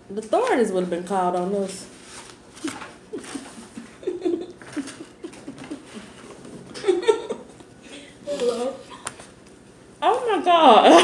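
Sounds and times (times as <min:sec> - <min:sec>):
woman laughing: 0:02.6 - 0:07.6.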